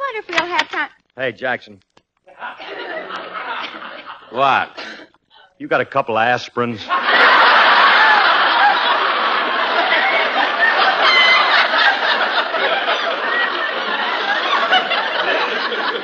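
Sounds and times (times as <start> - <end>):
audience laughing: 2.3 - 5.0, 6.8 - 16.0.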